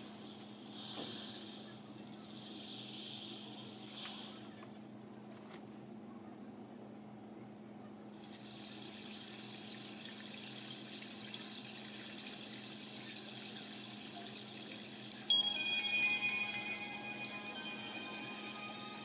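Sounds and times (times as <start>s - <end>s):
running water hissing: 0.0s - 4.5s, 8.2s - 19.0s
chime-like musical notes: 13.8s - 19.0s.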